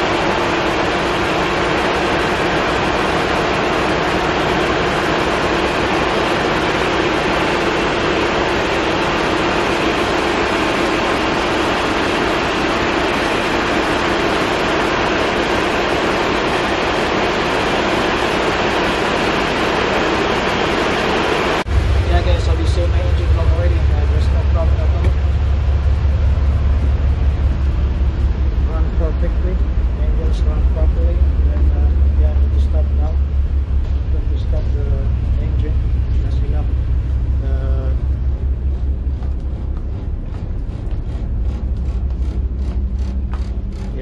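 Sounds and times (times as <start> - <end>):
large diesel engine droning: 0.0 - 44.0.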